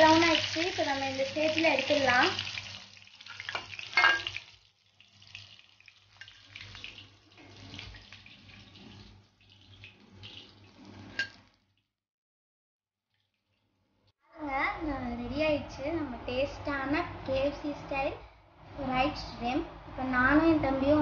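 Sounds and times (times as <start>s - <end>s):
shrimp sizzling in hot oil: 0.0s - 11.5s
steel spoon scraping a pan: 3.4s - 4.4s, 10.7s - 11.4s.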